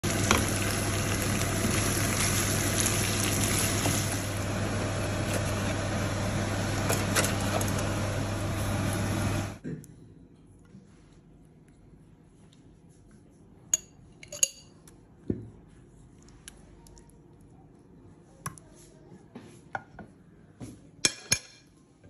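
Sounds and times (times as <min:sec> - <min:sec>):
rushing kitchen noise: 0:00.0 - 0:09.6.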